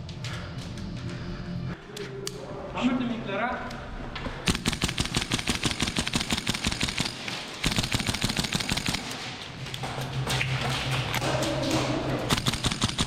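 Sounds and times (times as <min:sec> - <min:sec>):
airsoft rifle firing bursts: 0:04.5 - 0:09.3, 0:12.3 - 0:13.0.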